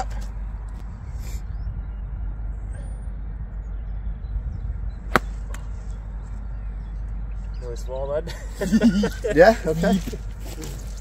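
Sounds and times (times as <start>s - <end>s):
wind on microphone: 0.0s - 6.1s
golf club striking ball: 5.1s - 5.7s.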